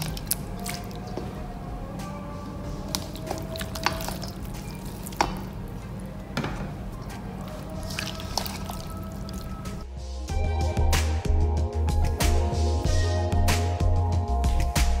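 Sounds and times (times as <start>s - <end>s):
wet squishing of marinade: 0.0s - 1.5s, 2.6s - 9.9s.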